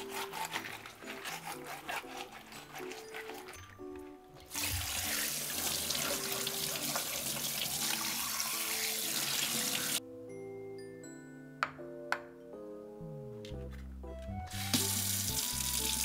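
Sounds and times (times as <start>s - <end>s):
soft background music: 0.0s - 16.0s
tap water splashing in sink: 4.5s - 7.6s.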